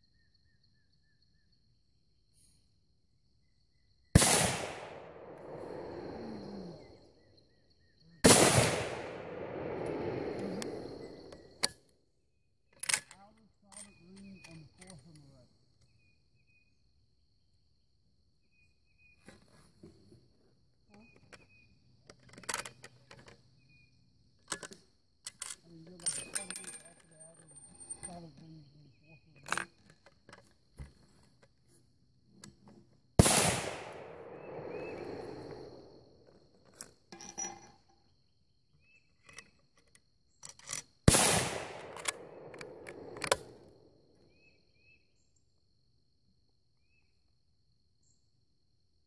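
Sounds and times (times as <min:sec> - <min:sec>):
rifle shot echoing: 0:04.2 - 0:06.4, 0:08.2 - 0:11.2, 0:33.2 - 0:35.9, 0:41.1 - 0:43.9
ringing metallic clinks: 0:25.3 - 0:28.4, 0:37.1 - 0:37.9
rifle bolt clicking: 0:41.7 - 0:43.4.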